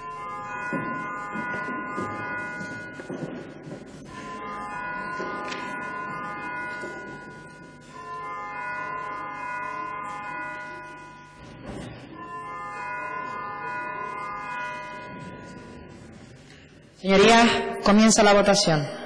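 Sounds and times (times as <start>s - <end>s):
bell ringing steady chime: 0.0s - 19.0s.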